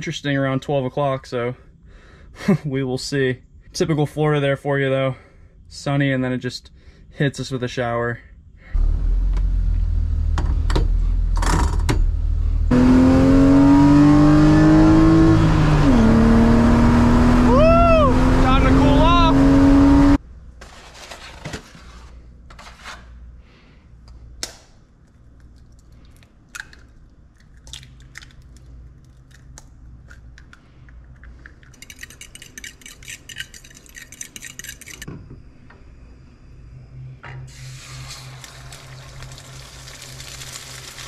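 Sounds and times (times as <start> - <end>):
eggs cracked against a bowl: 25.1 - 35.1
egg carton and utensils handled: 29.3 - 35.1
eggs beaten in a bowl: 31.5 - 35.1
eggs sizzling in a pan: 37.5 - 41.0.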